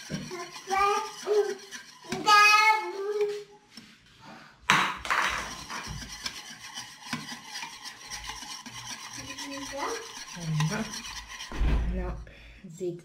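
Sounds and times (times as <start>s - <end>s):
whisk scraping a metal pan: 0.0s - 4.3s, 5.0s - 12.1s.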